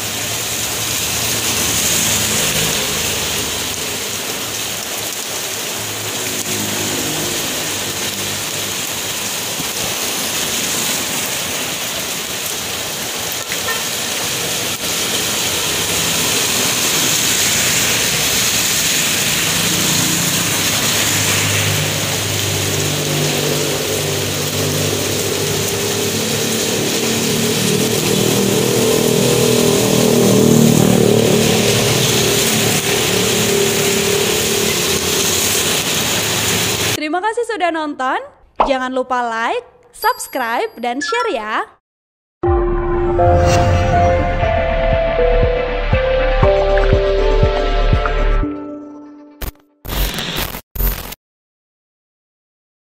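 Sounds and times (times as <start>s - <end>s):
rain on a wet road: 0.0s - 37.0s
motorbike passing: 0.2s - 37.0s
car passing: 0.4s - 13.0s, 13.8s - 37.0s.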